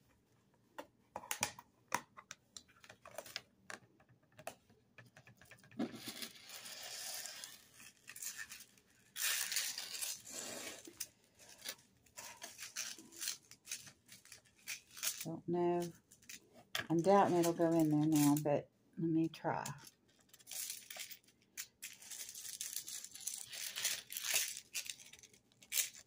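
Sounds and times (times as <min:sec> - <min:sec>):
plastic crinkling and rustling: 0:05.8 - 0:18.4, 0:19.7 - 0:26.0.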